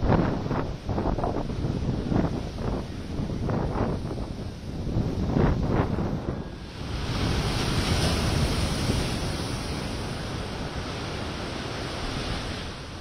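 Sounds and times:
wind on microphone: 0:00.0 - 0:13.0
surf breaking: 0:06.6 - 0:12.8.

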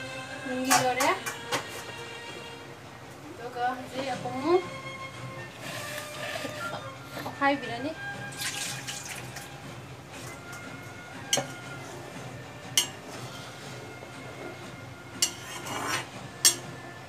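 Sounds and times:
spatula scraping through curry: 0:05.4 - 0:07.4, 0:11.3 - 0:16.8
spatula clinking on pan rim: 0:15.2 - 0:15.8, 0:16.4 - 0:16.7.

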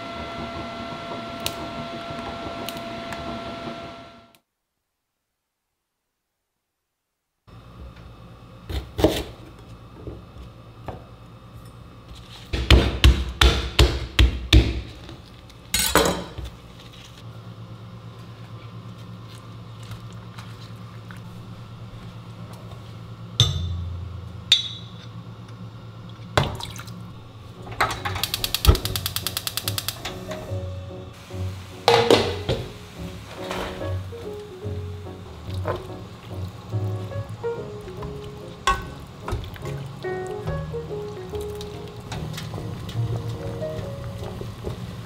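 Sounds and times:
sharp knocks in kitchen: 0:12.6 - 0:15.0, 0:23.4 - 0:25.0, 0:31.9 - 0:32.7
gas igniter clicking rapidly: 0:28.0 - 0:30.5.

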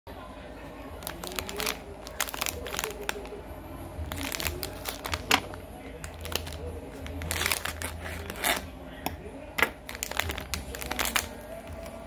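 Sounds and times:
plastic packaging crinkling: 0:01.0 - 0:03.4, 0:04.1 - 0:08.6, 0:09.8 - 0:12.0.

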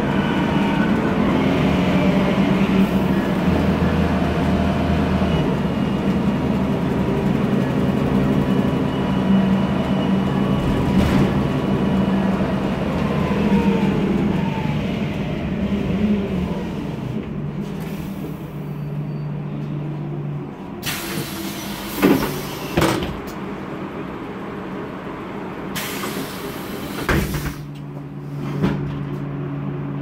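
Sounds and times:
bus engine humming: 0:00.0 - 0:30.0.

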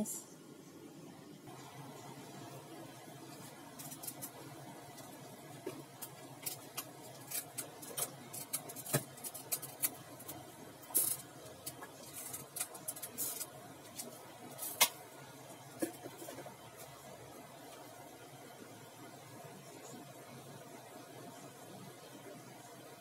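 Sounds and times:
oil crackling in a wok: 0:03.0 - 0:18.0.

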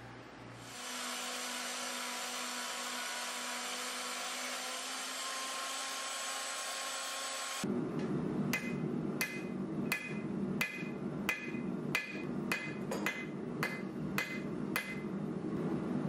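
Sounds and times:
hammer striking hot metal on anvil: 0:08.5 - 0:15.0.

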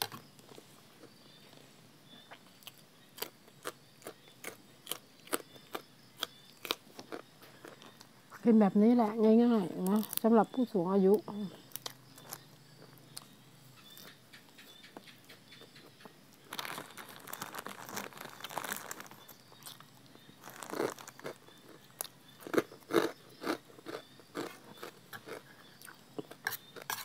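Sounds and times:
person chewing crunchy food: 0:02.2 - 0:08.4, 0:11.6 - 0:27.0.

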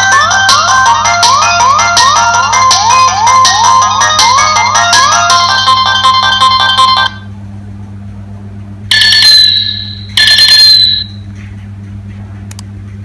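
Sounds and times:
phone ringtone chirps: 0:00.0 - 0:07.3, 0:08.9 - 0:11.2
steady low hum: 0:00.0 - 0:13.0.

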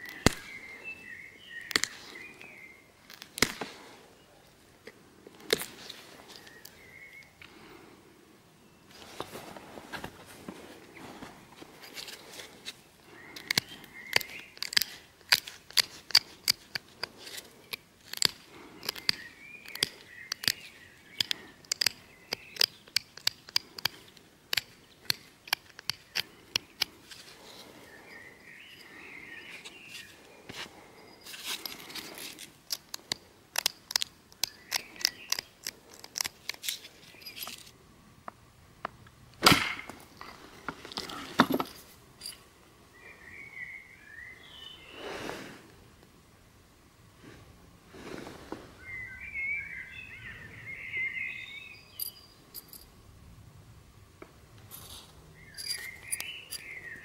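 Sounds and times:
bird chirping: 0:00.0 - 0:03.0, 0:06.2 - 0:07.7, 0:13.1 - 0:14.9, 0:18.5 - 0:23.8, 0:27.4 - 0:31.8, 0:34.3 - 0:36.2, 0:42.9 - 0:45.1, 0:48.8 - 0:52.8, 0:55.3 - 0:57.0
flint knapping clicks: 0:01.6 - 0:03.7, 0:13.2 - 0:27.3, 0:31.5 - 0:38.4.

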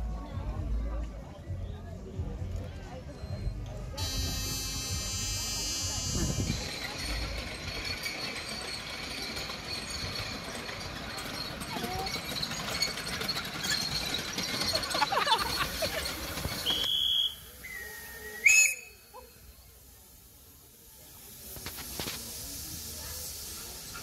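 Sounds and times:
steam locomotive hissing steam: 0:03.9 - 0:24.0
high whistle tones: 0:16.6 - 0:19.5.

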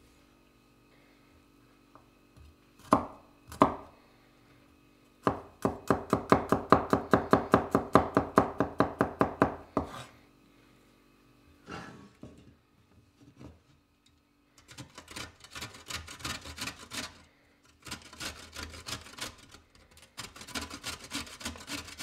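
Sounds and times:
knife chopping on wooden board: 0:02.8 - 0:03.9, 0:05.2 - 0:10.1.

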